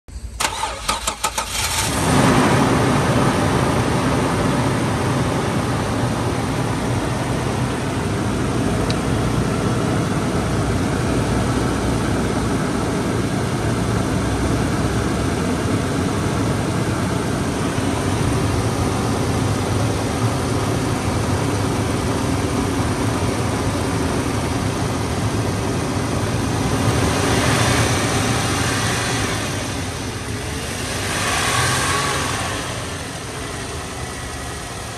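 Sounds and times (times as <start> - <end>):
car engine idling: 0.1 - 34.9
starter motor cranking: 0.4 - 2.0.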